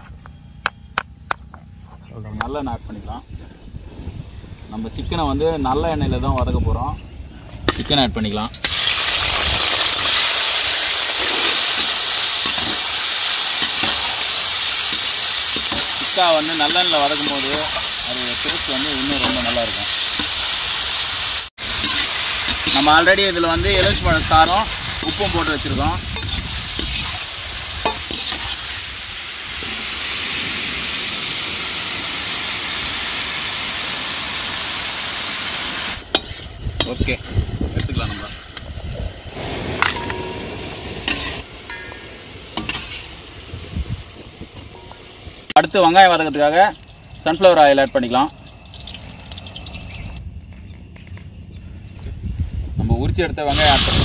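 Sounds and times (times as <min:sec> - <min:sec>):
chicken frying in oil: 0:08.7 - 0:36.0, 0:45.6 - 0:50.2
spoon clinking: 0:14.8 - 0:20.5, 0:21.8 - 0:28.6, 0:39.9 - 0:40.4.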